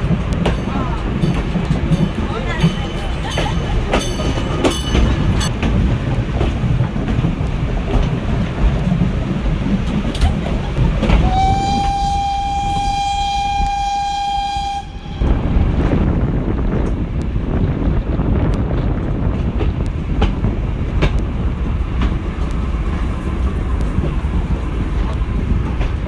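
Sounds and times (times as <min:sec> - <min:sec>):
carriage rumbling on rails: 0:00.0 - 0:26.0
steam locomotive whistle: 0:11.2 - 0:15.3.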